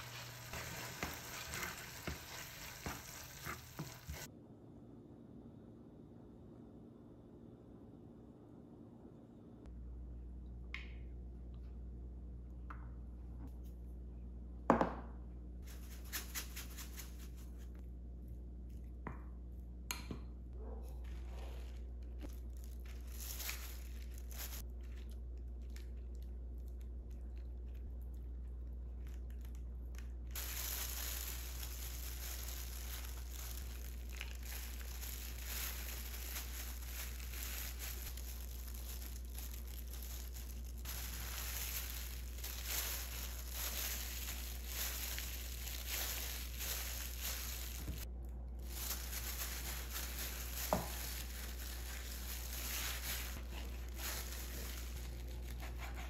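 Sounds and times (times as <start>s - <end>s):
plastic glove crinkling: 0.0s - 4.3s, 15.6s - 17.8s, 21.1s - 27.9s, 28.7s - 56.0s
steady low hum: 4.1s - 56.0s.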